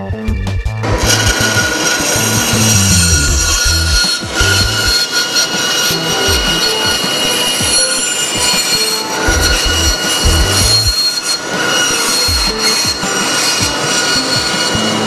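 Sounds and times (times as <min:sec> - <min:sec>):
bandsaw cutting wood: 0:00.8 - 0:15.0.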